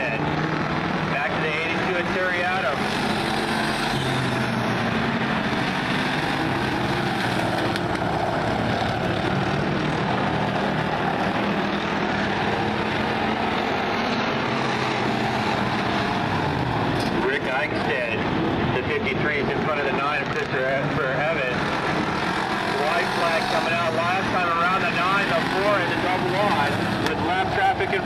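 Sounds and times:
race car engines droning: 0.0s - 28.0s.

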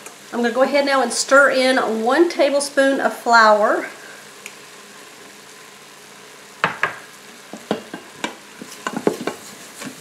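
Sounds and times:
faint meat sizzle: 0.0s - 10.0s
spoon scraping and knocking pot: 7.6s - 9.4s.

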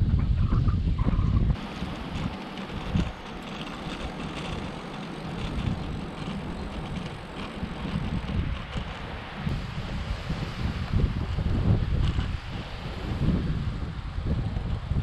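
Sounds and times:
wind noise on microphone: 0.0s - 15.0s
bicycle tyres hissing on asphalt: 1.5s - 15.0s.

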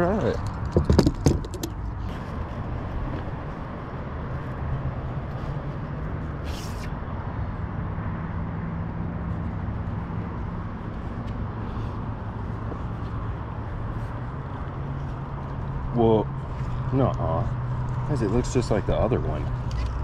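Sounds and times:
faint engine hum: 0.0s - 20.0s
low outdoor rumble: 0.0s - 20.0s
brief hiss: 6.4s - 6.9s.

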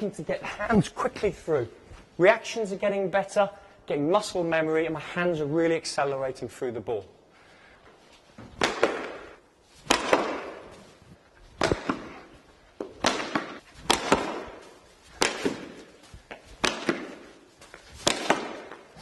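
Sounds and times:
cricket bat striking balls: 8.4s - 10.9s, 11.6s - 19.0s.

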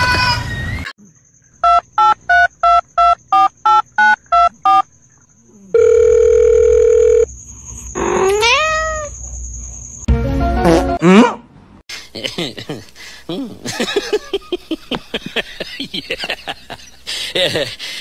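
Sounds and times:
steady phone tone: 5.8s - 7.3s
cat meowing: 8.2s - 9.1s.

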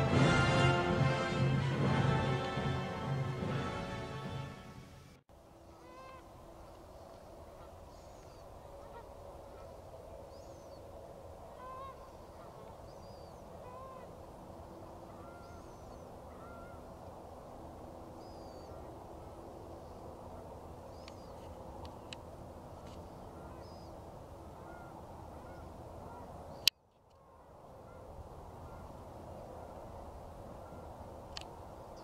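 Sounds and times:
geese honking: 5.7s - 6.3s, 8.6s - 9.8s, 11.5s - 12.9s, 13.5s - 14.1s, 15.0s - 16.9s, 24.5s - 26.4s.

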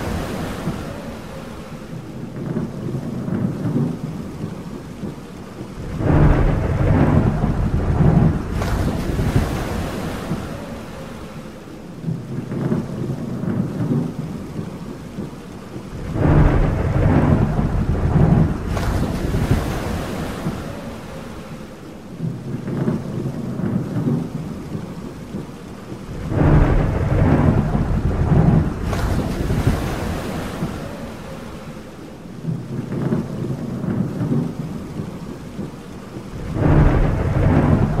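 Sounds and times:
thunder rolling: 0.0s - 11.3s, 15.8s - 21.5s, 25.8s - 38.0s
sea waves: 0.0s - 38.0s
steady rain: 0.0s - 38.0s.

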